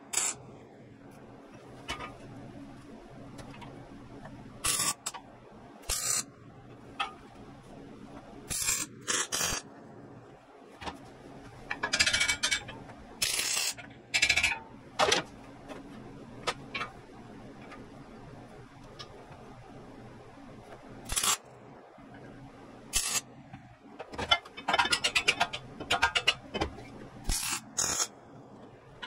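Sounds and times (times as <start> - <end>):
welding arc bursts: 0.0 - 0.4, 5.9 - 6.2, 8.5 - 9.6, 13.2 - 13.8, 21.1 - 21.4, 23.0 - 23.2, 27.3 - 28.1
steady low hum: 0.0 - 29.0.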